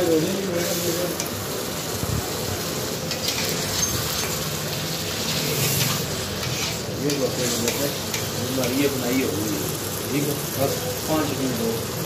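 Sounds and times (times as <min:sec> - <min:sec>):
mince sizzling in a pan: 0:00.0 - 0:12.0
steel spatula scraping pan: 0:05.2 - 0:07.9.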